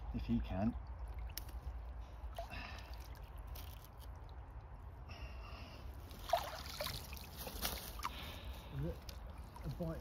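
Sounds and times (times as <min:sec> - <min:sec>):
net swishing through water: 0:06.2 - 0:08.1.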